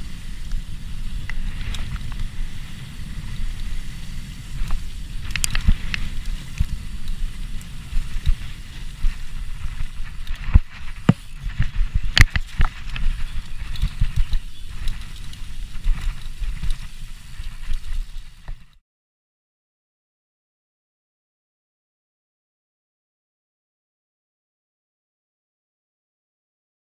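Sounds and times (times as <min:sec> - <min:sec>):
bike rattling over bumps: 0:00.0 - 0:18.8
bike tyres rumbling on dirt: 0:00.0 - 0:18.8.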